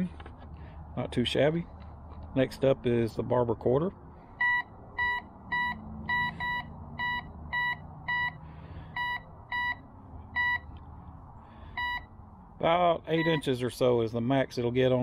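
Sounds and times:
metal detector high beeps: 4.4s - 8.4s, 9.0s - 9.8s, 10.4s - 10.7s, 11.8s - 12.1s, 13.2s - 13.5s.

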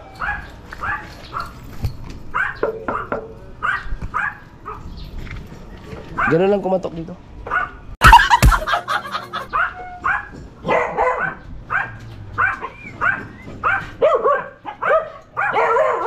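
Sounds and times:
dog barking: 2.4s - 4.9s, 6.2s - 6.4s, 7.5s - 7.8s, 9.4s - 16.0s.

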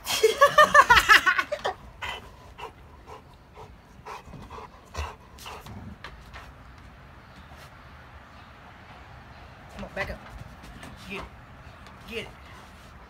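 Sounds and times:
dog panting: 1.9s - 6.7s.

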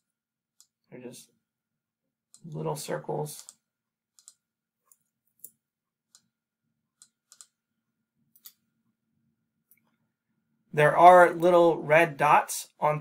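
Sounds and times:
computer mouse clicks: 3.4s - 6.3s, 7.0s - 7.6s, 8.3s - 8.6s.

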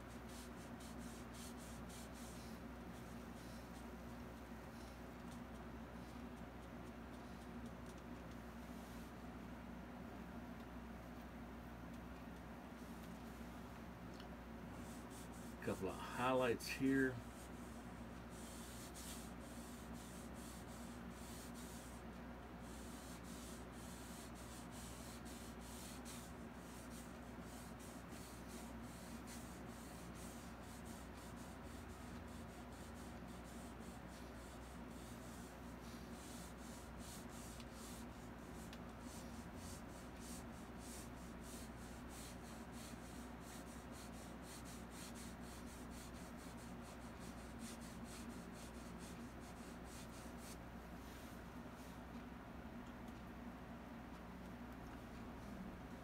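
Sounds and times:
paintbrush scratching on canvas: 0.0s - 3.9s, 14.8s - 22.0s, 22.6s - 51.4s
steady low hum: 0.0s - 56.0s.

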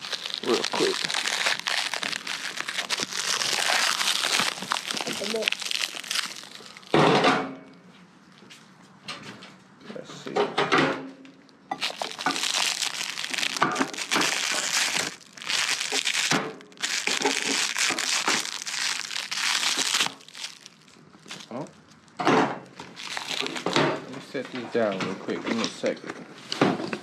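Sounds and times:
plastic wrap crinkling and tearing: 0.0s - 7.1s, 11.7s - 24.5s.

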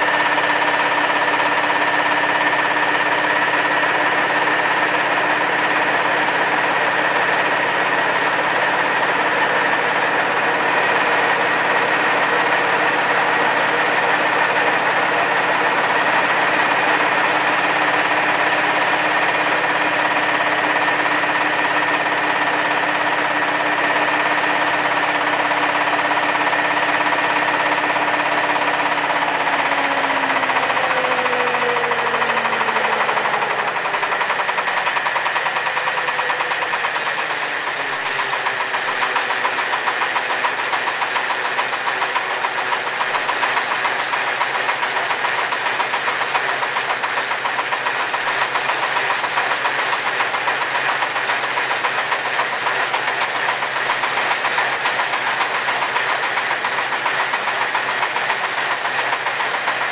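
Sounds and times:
pellet mill running: 0.0s - 59.9s.

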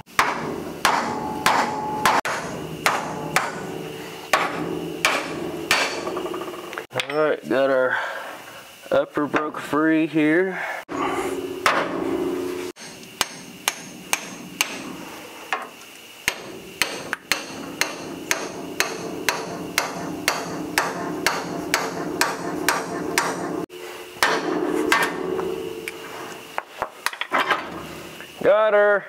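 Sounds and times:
hammer striking steel: 0.1s - 6.6s, 10.9s - 15.0s, 16.2s - 27.2s.

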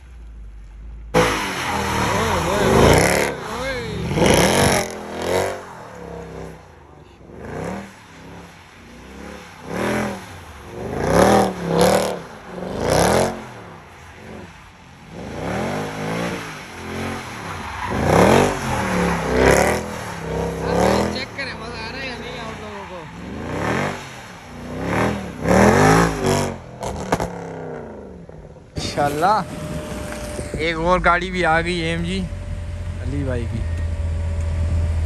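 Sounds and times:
car engine revving: 0.0s - 35.0s
tyres spinning on wet tarmac: 1.2s - 26.3s.

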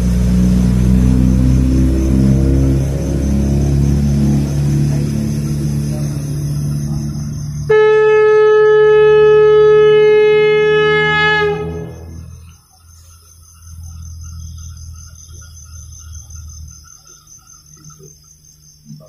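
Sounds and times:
low rumble: 0.0s - 7.7s, 9.5s - 12.6s
conch shell blown: 7.6s - 12.4s.

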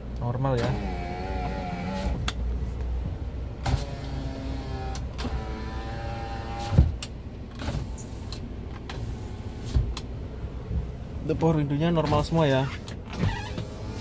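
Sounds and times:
power window motor whining: 0.6s - 2.4s, 3.6s - 10.0s, 12.1s - 14.0s.

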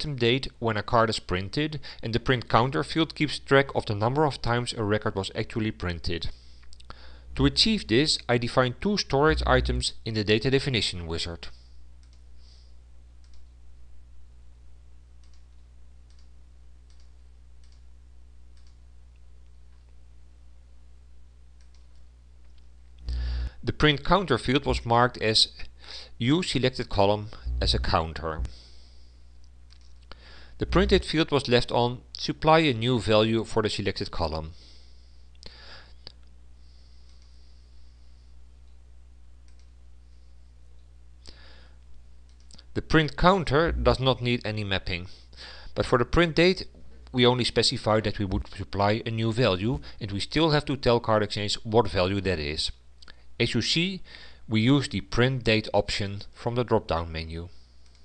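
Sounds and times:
steady low hum: 0.0s - 58.0s
low hum: 9.2s - 10.1s, 17.6s - 23.6s, 27.3s - 31.3s, 43.3s - 44.4s
computer mouse clicks: 12.0s - 12.3s, 13.2s - 13.6s, 15.2s - 16.3s, 16.9s - 17.9s, 18.5s - 18.8s, 21.6s - 22.7s, 29.4s - 30.1s, 39.4s - 39.7s.

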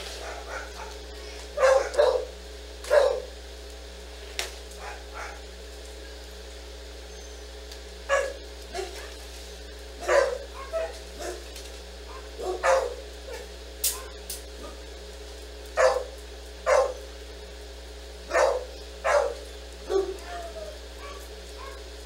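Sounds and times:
dog barking: 0.1s - 3.3s, 4.8s - 5.5s, 8.1s - 9.2s, 10.0s - 11.4s, 12.1s - 14.8s, 15.8s - 17.0s, 18.3s - 21.9s.

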